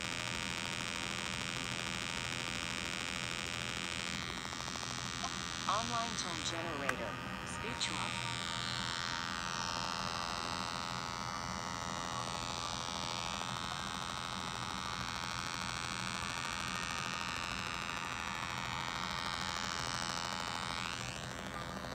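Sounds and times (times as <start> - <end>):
low synthetic hum with overtones: 0.0 - 16.6.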